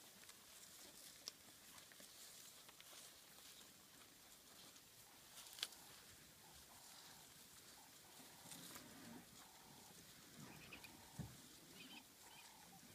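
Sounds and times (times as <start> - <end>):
elephants making soft low sounds: 5.1 - 12.9.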